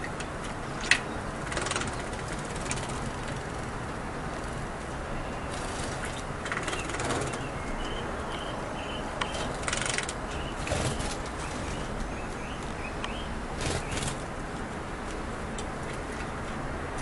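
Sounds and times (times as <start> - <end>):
wings fluttering: 1.4 - 3.5, 5.5 - 7.5, 9.3 - 11.9, 13.5 - 14.3
birds chirping: 4.9 - 14.3.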